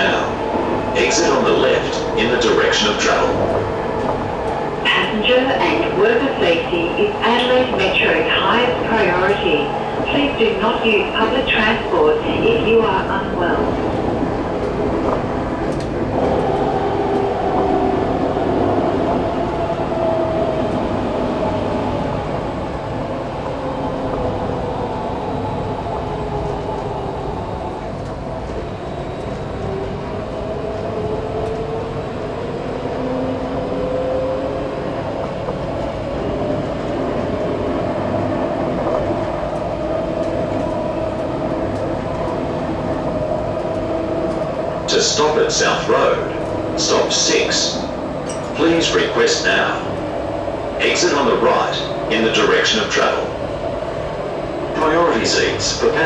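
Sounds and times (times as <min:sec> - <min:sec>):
tram rumbling on rails: 0:00.0 - 0:56.0.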